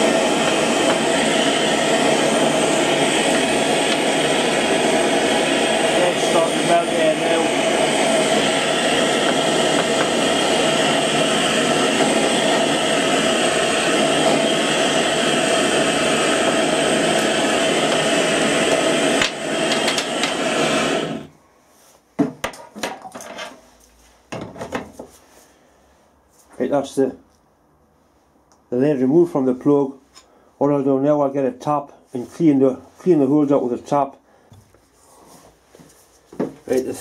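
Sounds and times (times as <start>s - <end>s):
blowtorch flame roaring: 0.0s - 21.4s.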